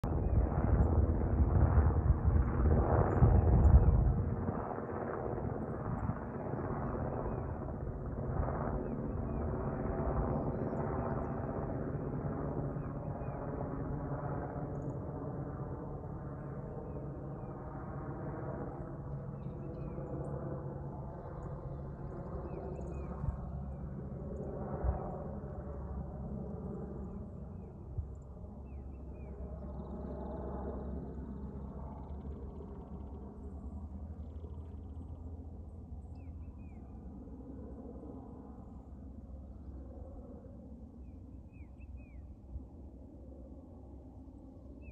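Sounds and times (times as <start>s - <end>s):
helicopter rotor and turbine hum: 0.0s - 44.9s.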